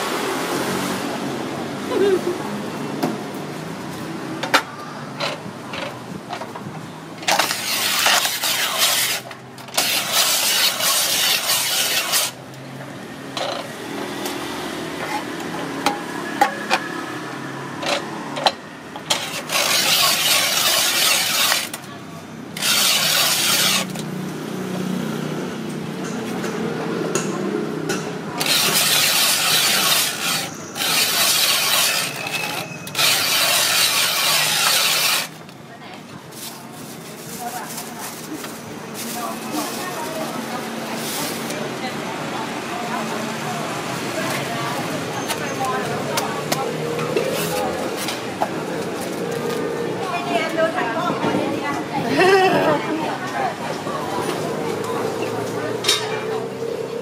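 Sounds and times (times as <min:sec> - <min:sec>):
ice-shaving machine grinding: 0:07.2 - 0:12.4, 0:19.1 - 0:21.9, 0:22.6 - 0:24.1, 0:28.4 - 0:35.4.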